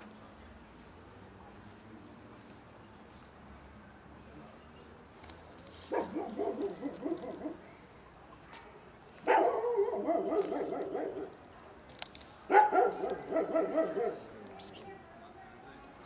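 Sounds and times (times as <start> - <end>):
dog barking: 5.9 - 7.6, 9.2 - 11.4, 12.5 - 15.0.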